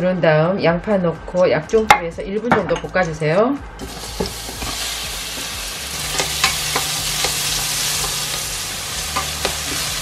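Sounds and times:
onions sizzling in oil: 0:03.8 - 0:10.0.

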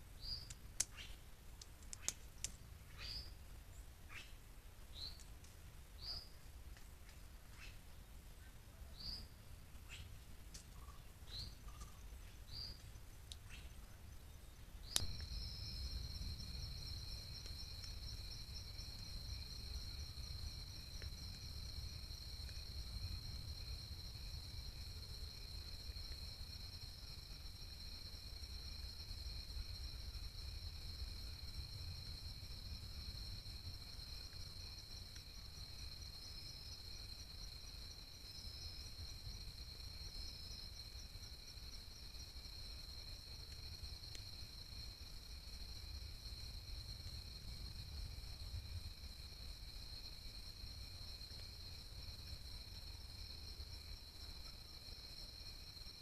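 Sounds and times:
insect chorus trilling: 0:14.8 - 0:56.0.

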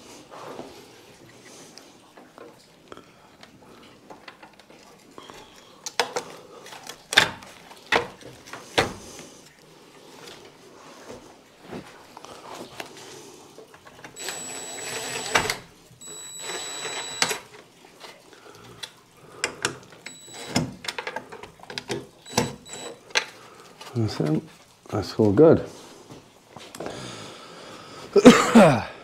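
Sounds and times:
cordless drill whining: 0:14.2 - 0:17.4, 0:20.1 - 0:20.7, 0:22.2 - 0:23.0.

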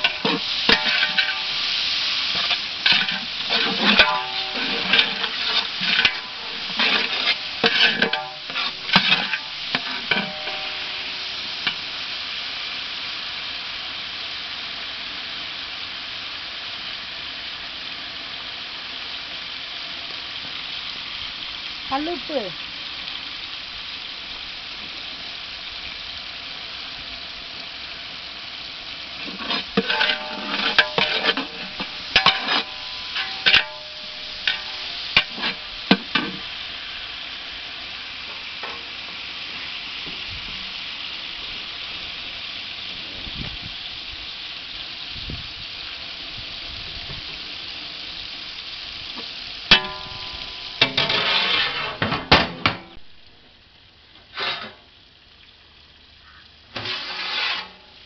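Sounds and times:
metal ladle clanking against pot: 0:00.0 - 0:01.5, 0:02.4 - 0:10.8, 0:29.3 - 0:36.4
food sizzling in pot: 0:00.0 - 0:58.0.

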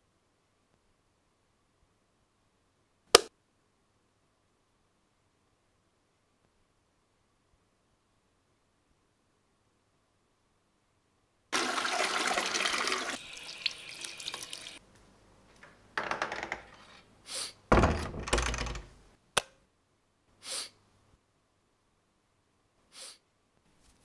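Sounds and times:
toilet flushing: 0:11.6 - 0:14.8.

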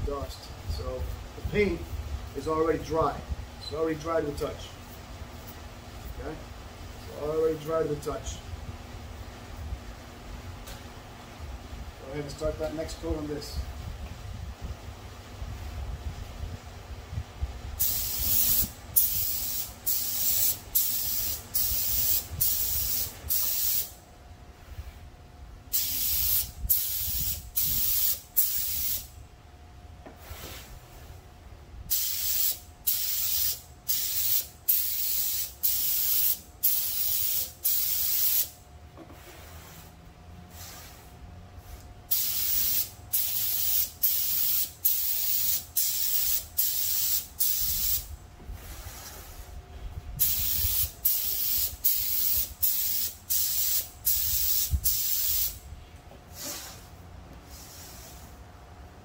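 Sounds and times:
spray gun hissing: 0:17.8 - 0:24.0, 0:25.7 - 0:29.1, 0:31.9 - 0:38.6, 0:42.1 - 0:49.5, 0:50.2 - 0:55.6.

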